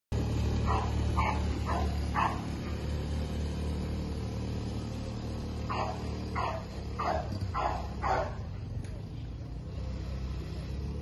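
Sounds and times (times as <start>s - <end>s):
engine droning: 0.1s - 11.0s
dog barking: 0.6s - 2.6s, 5.7s - 8.5s.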